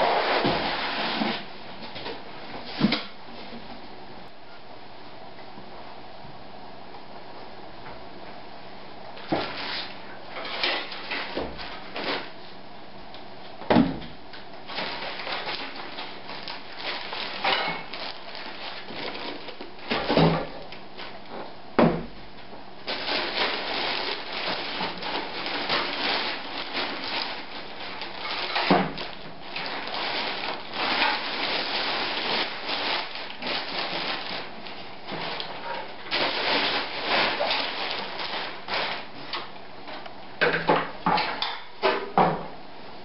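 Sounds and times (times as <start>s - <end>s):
plastic bag crinkling: 14.7s - 20.1s, 22.8s - 39.5s.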